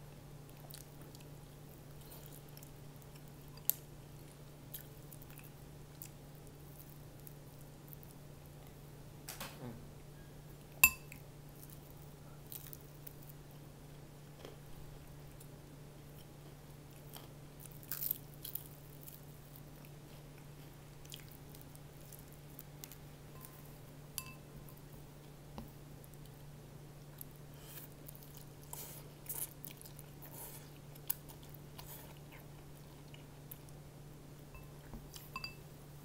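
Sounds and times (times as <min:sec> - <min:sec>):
steady low hum: 0:00.0 - 0:36.0
crunching fried chicken: 0:16.2 - 0:23.1.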